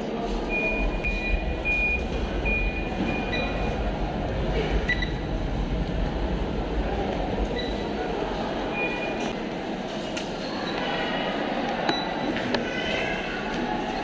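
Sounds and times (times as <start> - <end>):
high electronic beeps: 0.5 - 3.8, 4.9 - 5.3
steady low rumble: 0.8 - 8.9.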